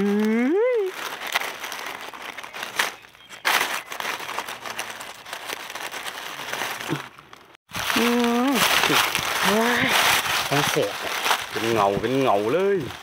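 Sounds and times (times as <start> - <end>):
dry leaves rustling: 0.0 - 13.0.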